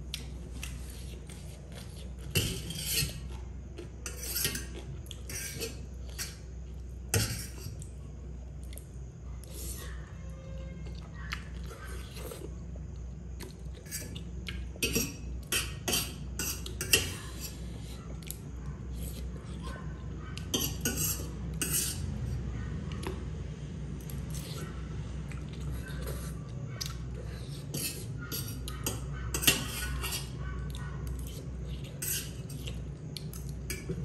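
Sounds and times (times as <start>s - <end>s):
chewing: 10.8s - 14.8s, 24.0s - 34.0s.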